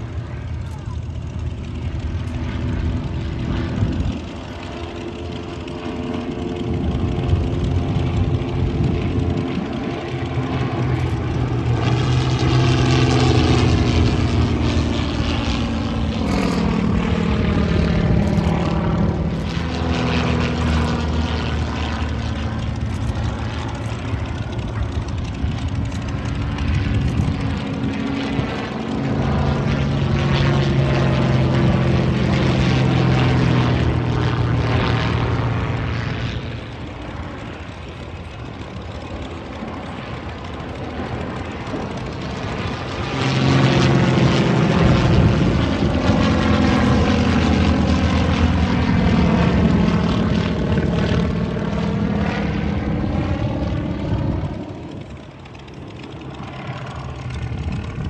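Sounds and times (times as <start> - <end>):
propeller plane engines droning: 0.0 - 58.0.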